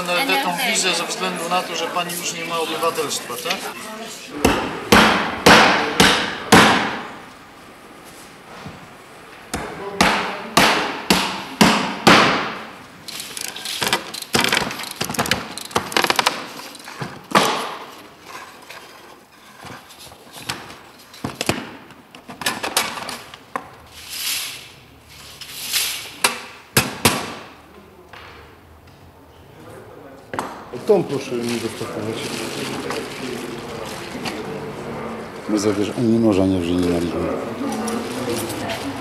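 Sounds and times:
hammer striking nails: 4.4 - 7.1, 9.5 - 12.6.

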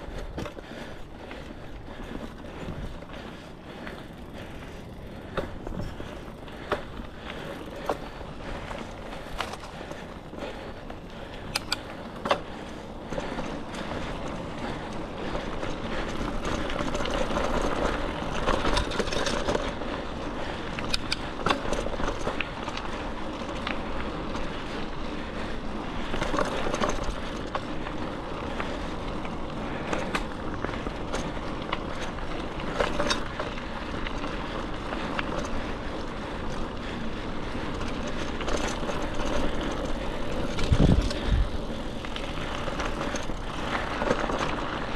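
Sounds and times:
bike tyres rolling on dirt: 0.0 - 44.9
bike knocks and rattles: 15.2 - 22.8, 29.8 - 35.7.

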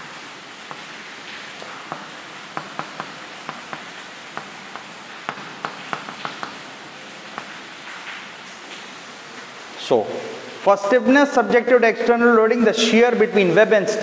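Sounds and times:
steady background hiss: 0.0 - 14.0
chalk tapping and scratching: 0.6 - 7.7.

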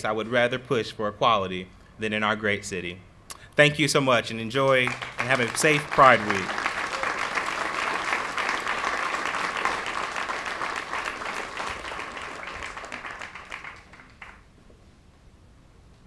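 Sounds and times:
audience applauding: 4.6 - 14.5.

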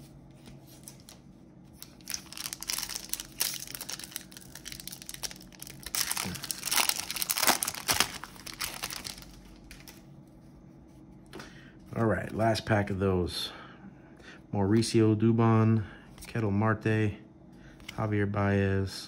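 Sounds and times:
foil wrapper tearing and crinkling: 1.8 - 10.0.

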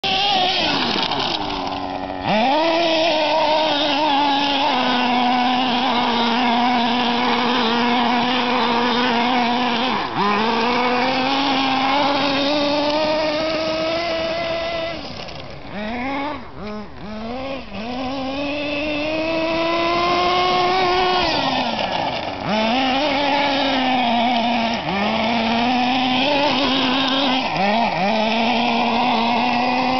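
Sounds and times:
model car engine revving: 0.0 - 29.9.

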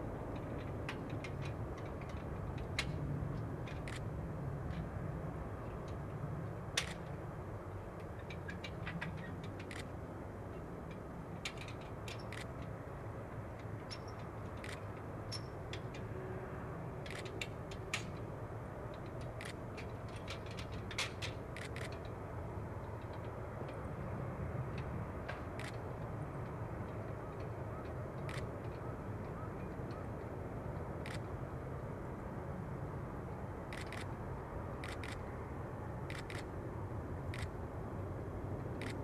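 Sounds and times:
sharp clicks and ticks: 0.3 - 4.1, 6.8 - 7.1, 8.2 - 9.9, 10.8 - 12.8, 13.6 - 16.0, 17.0 - 18.2, 18.9 - 22.2, 24.7 - 28.8, 30.8 - 31.3, 33.7 - 34.2, 34.8 - 35.3, 36.1 - 36.5, 37.3 - 37.5, 38.6 - 39.0.

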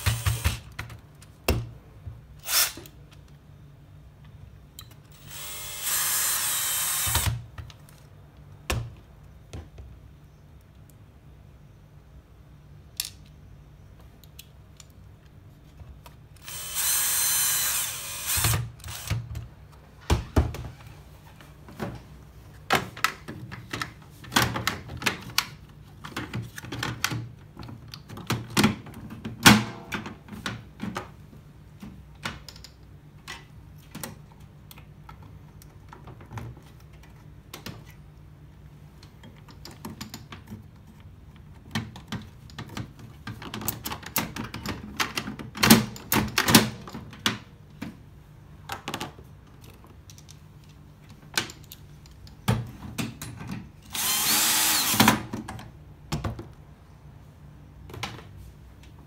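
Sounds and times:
cordless drill running: 0.0 - 0.6, 2.4 - 2.8, 5.2 - 7.4, 16.4 - 19.1, 53.9 - 55.1.

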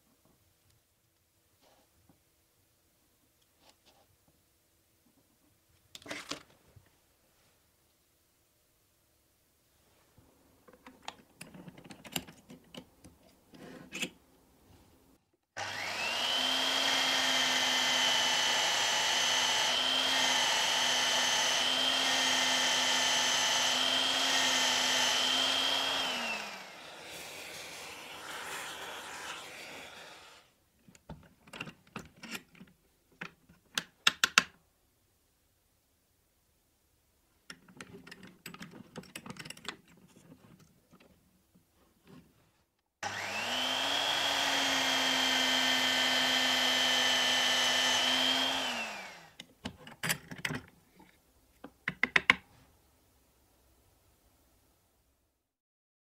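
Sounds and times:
drill press motor whine: 15.6 - 27.1, 43.0 - 49.4.

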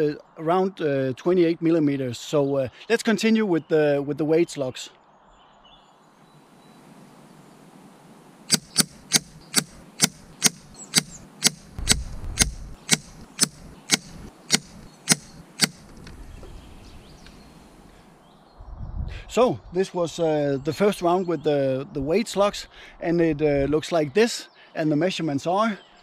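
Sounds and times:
air rifle shots: 8.5 - 16.1.

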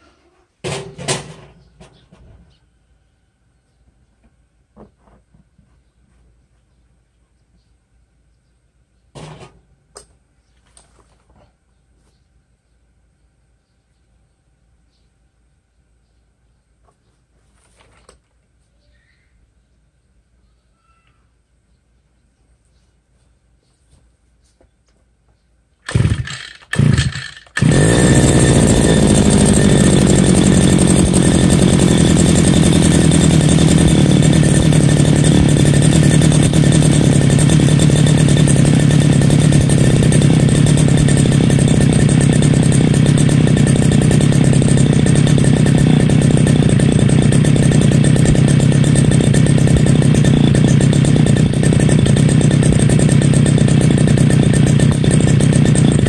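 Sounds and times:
brush cutter engine starting: 25.9 - 56.0.

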